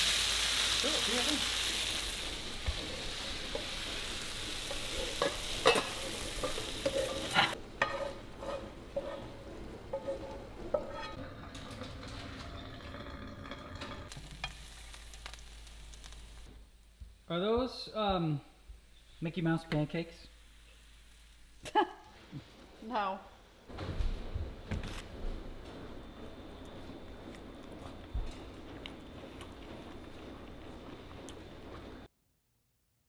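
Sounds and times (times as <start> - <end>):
meat and vegetables sizzling: 0.0 - 16.6, 19.0 - 22.3
pans and utensils clinking: 3.4 - 14.6
spatula scraping pan: 3.5 - 14.6.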